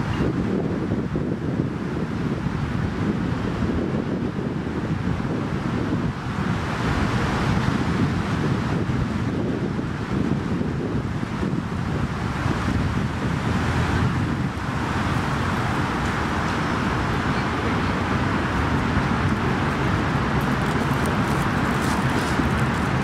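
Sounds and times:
road traffic hum: 0.0s - 23.0s
wind buffeting microphone: 0.0s - 23.0s.

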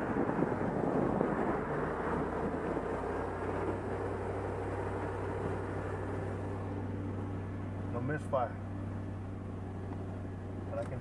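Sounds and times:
engine revving under load: 0.0s - 6.9s.

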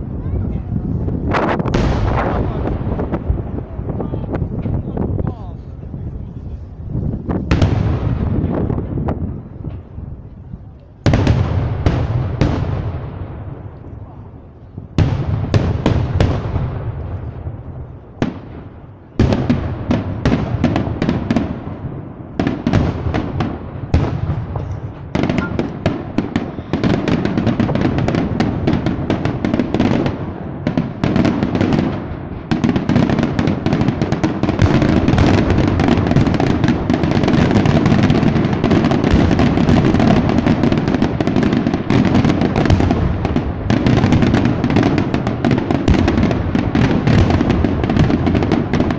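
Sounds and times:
firework crackling: 0.0s - 48.9s
firework shells bursting: 22.4s - 48.9s.

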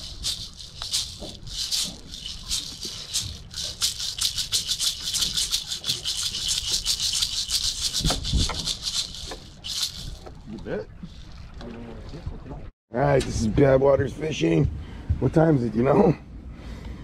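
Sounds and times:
hand rattles shaking: 0.0s - 11.4s.

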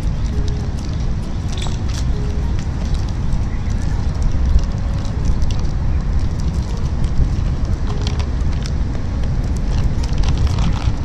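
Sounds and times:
candy wrappers crinkling: 0.0s - 11.0s
wind buffeting microphone: 0.0s - 11.0s.

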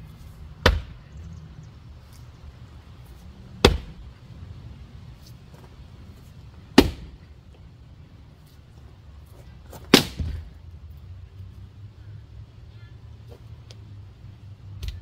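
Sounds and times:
axe striking wet wood: 0.6s - 1.0s, 3.6s - 4.0s, 6.8s - 7.2s, 9.9s - 10.4s.

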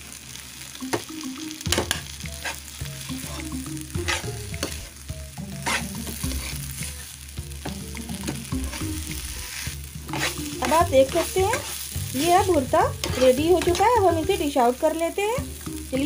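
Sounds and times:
quiet sizzle: 0.0s - 16.0s
spatula scraping frying pan: 1.8s - 7.2s, 8.0s - 14.3s.

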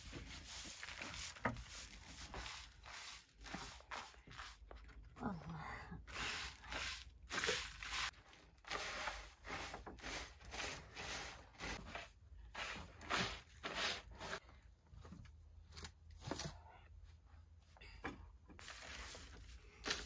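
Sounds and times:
twig broom sweeping a mat: 0.0s - 5.0s, 6.0s - 14.4s, 18.6s - 20.0s.

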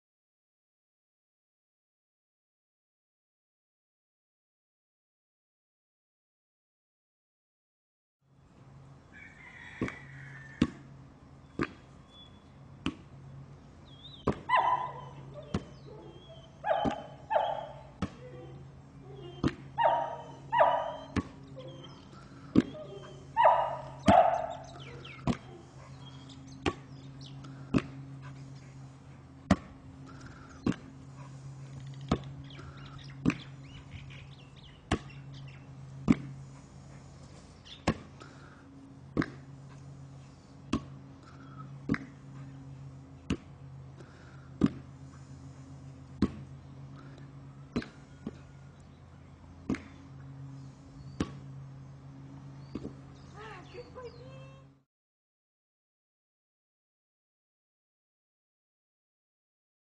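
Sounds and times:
ball thumping: 10.6s - 10.9s, 11.5s - 11.9s, 12.8s - 13.2s, 14.2s - 14.7s, 15.4s - 15.8s, 16.6s - 17.2s, 17.9s - 18.2s, 19.3s - 20.0s, 20.6s - 21.5s, 22.5s - 25.6s, 26.6s - 26.9s, 27.7s - 28.2s, 29.4s - 29.8s, 30.6s - 31.1s, 32.0s - 32.4s, 33.2s - 33.6s, 34.8s - 35.3s, 36.0s - 36.5s, 37.8s - 38.2s, 39.0s - 39.5s, 40.7s - 41.0s, 41.8s - 42.4s, 43.2s - 43.6s, 44.6s - 45.0s, 46.1s - 46.5s, 47.7s - 48.4s, 49.6s - 50.0s, 51.2s - 51.4s, 52.7s - 53.0s
dog barking: 14.5s - 22.0s, 22.7s - 26.2s.

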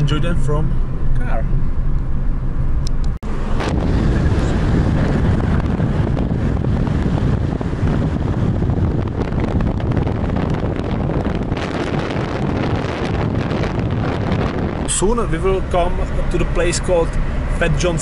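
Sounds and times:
car engine and tyres rumbling: 0.0s - 18.0s
wind buffeting microphone: 3.0s - 18.0s.

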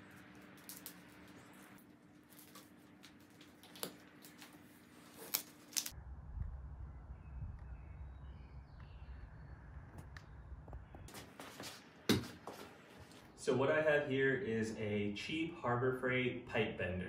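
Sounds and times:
low steady rumble: 5.9s - 11.1s.

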